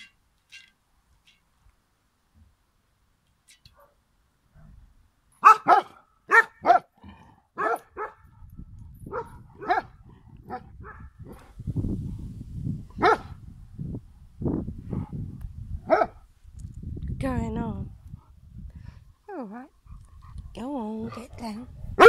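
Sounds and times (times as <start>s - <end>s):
dog barking: 5.4s - 6.9s, 7.6s - 8.3s, 9.1s - 11.1s, 13.0s - 13.3s, 15.9s - 16.2s.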